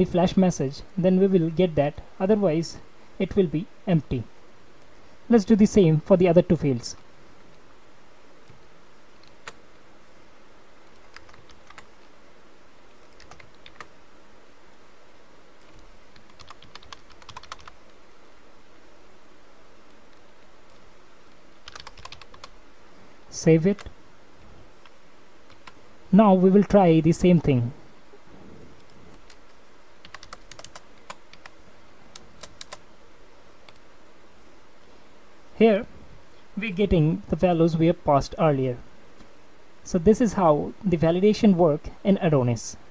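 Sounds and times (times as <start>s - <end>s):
faint steady hiss: 0.0s - 42.9s
keyboard keys clicking: 10.9s - 11.9s, 13.0s - 13.9s, 15.6s - 17.8s, 21.6s - 22.5s, 30.0s - 31.5s, 32.1s - 32.8s.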